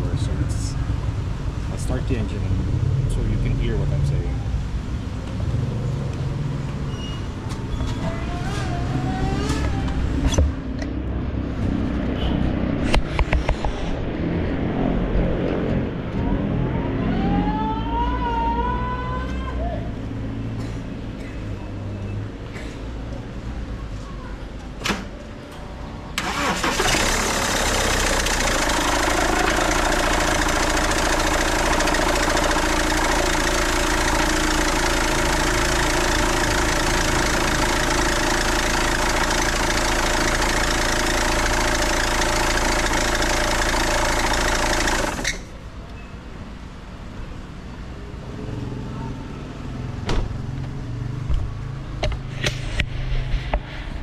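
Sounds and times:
diesel engine starting and running: 24.8s - 45.7s.

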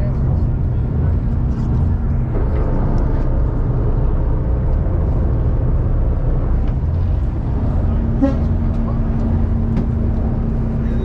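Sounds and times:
boat engine rumbling: 0.0s - 11.0s.

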